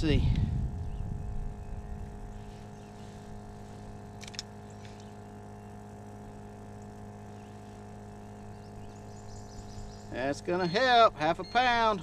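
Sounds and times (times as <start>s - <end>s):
low mechanical hum: 0.0s - 12.0s
sharp clicks: 4.2s - 5.0s.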